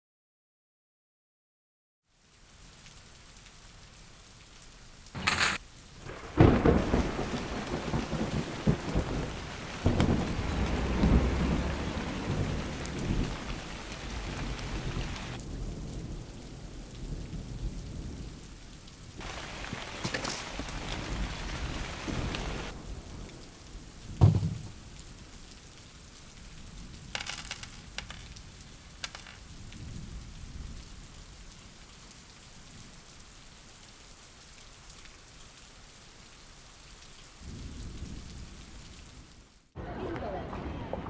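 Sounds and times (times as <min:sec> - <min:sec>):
rain falling: 0:02.0 - 0:41.0
thunder crack and rumble: 0:06.1 - 0:18.4, 0:19.2 - 0:25.0, 0:40.1 - 0:41.0.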